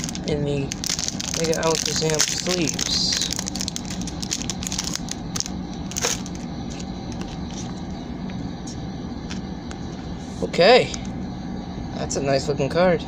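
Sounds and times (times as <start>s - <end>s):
plastic card sleeve crinkling: 0.0s - 7.8s
steady low hum: 0.0s - 13.0s.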